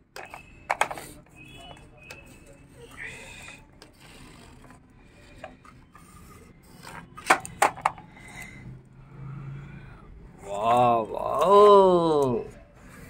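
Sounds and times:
hard plastic rubbing and scraping: 0.1 - 8.6.

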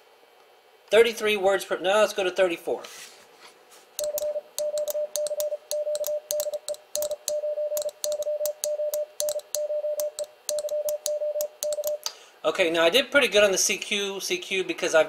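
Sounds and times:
morse code beeps: 4.0 - 12.0
morse key contacts clicking: 4.0 - 12.1.

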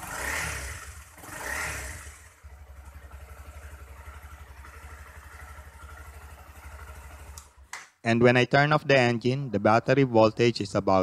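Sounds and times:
motorcycle engine revving and idling: 0.0 - 7.6.

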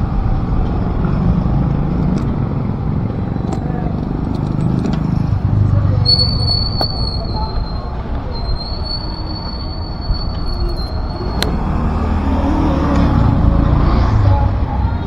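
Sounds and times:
high-pitched squeal: 6.0 - 12.8
heavy vehicle rumbling past: 11.0 - 15.0.

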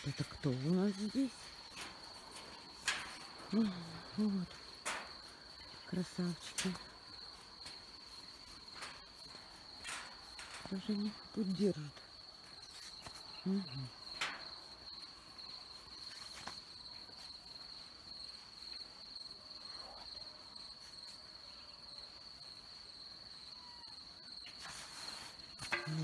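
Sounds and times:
crickets trilling: 0.0 - 26.0
voice murmuring: 3.5 - 4.6, 13.4 - 14.0.

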